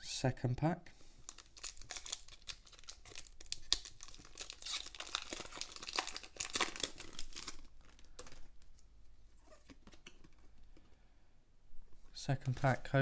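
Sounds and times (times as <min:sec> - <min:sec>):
foil wrapper torn and crinkled: 0:01.3 - 0:08.4.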